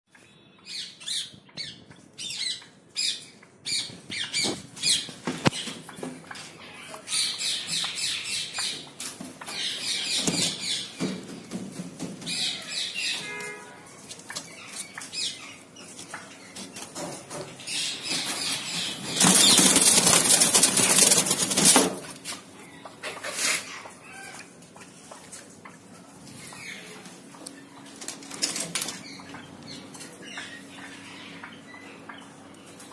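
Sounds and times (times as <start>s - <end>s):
birds chirping: 0.1s - 32.9s
wing flapping: 18.2s - 22.2s.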